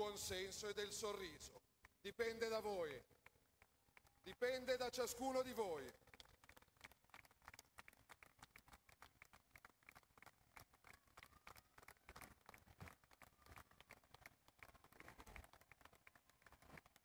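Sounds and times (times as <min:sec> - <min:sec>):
faint crowd applause: 0:03.6 - 0:17.0.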